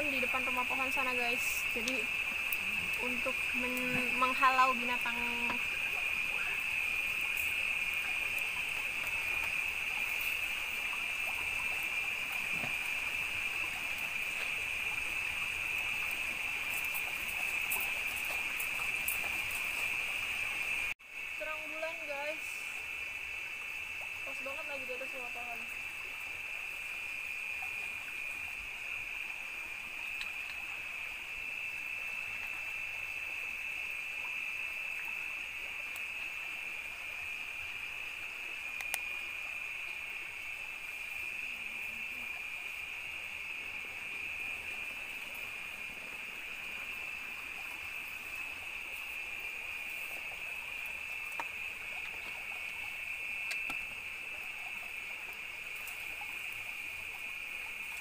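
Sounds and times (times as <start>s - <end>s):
insect chorus trill: 0.0s - 58.0s
faint clicks: 1.8s - 3.0s, 38.8s - 39.1s, 53.4s - 53.9s.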